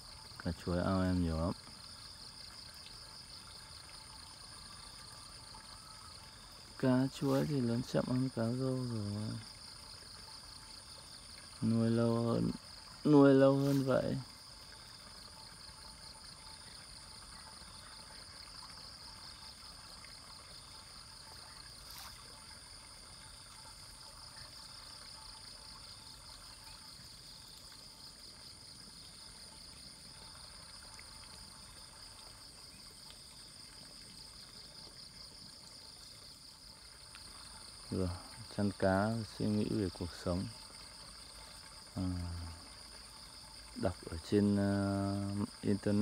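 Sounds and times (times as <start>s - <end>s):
insects trilling: 0.0s - 46.0s
water trickling: 0.0s - 46.0s.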